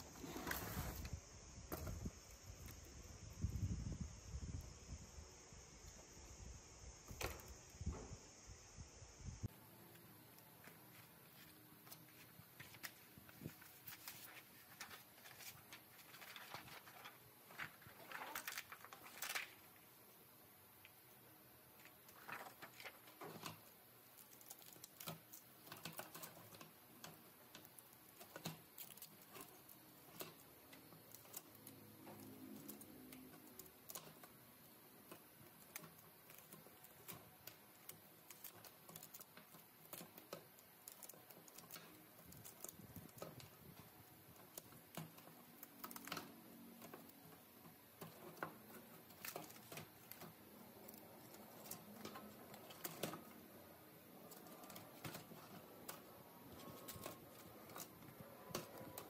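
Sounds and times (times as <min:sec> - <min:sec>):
laptop parts clicking on wood: 0:21.8 - 0:59.0.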